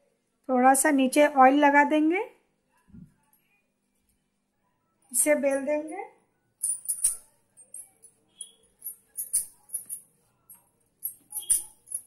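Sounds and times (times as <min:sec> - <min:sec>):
light jingling: 0:06.6 - 0:12.0.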